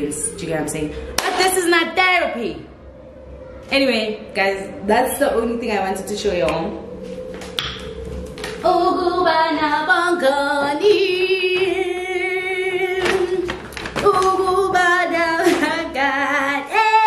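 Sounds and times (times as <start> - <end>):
woman singing unaccompanied: 8.6 - 17.0.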